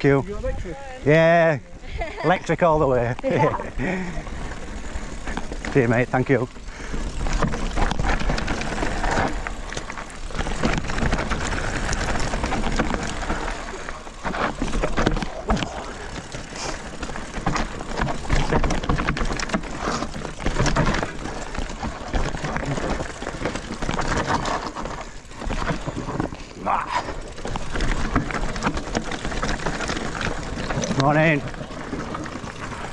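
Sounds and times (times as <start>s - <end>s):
bike frame rattling: 0.0s - 32.9s
tyres crunching over stones: 0.0s - 32.9s.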